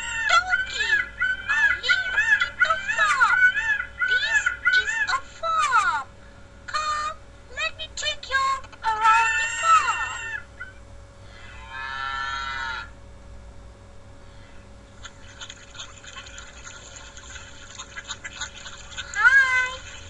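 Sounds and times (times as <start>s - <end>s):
farm animal calls: 9.4s - 12.9s.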